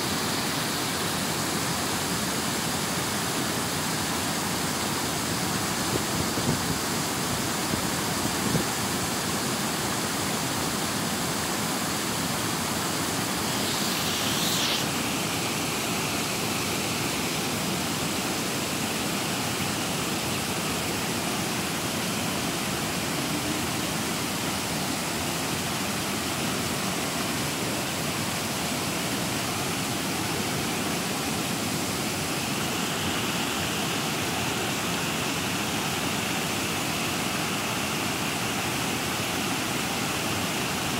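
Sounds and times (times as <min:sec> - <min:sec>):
stream water rushing over stones: 0:00.0 - 0:40.9.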